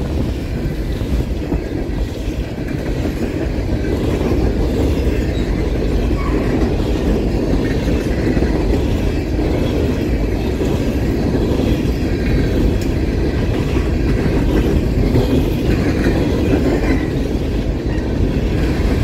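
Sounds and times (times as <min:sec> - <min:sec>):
train cars rolling on track: 0:00.0 - 0:19.0.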